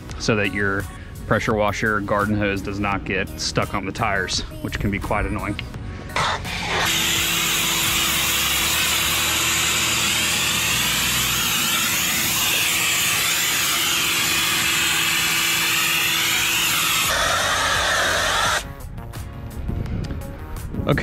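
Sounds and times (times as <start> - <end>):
pressure washer motor hum: 6.1 - 18.6
foam spray hissing: 6.2 - 18.6.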